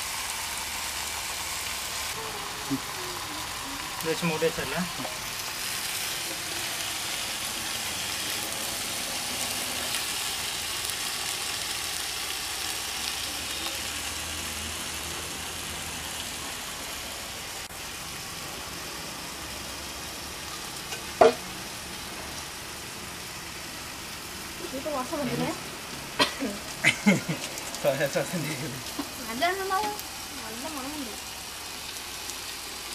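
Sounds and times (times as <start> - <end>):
meat sizzling on a griddle: 0.0 - 32.9.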